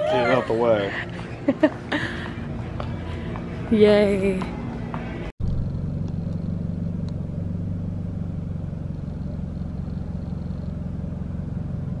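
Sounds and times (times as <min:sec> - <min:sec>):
car engine rumbling: 0:04.5 - 0:12.0.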